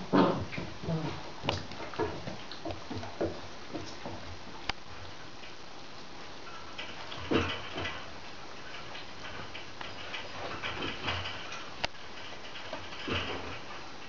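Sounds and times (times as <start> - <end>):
puppy claws scratching and tapping: 6.8 - 13.9.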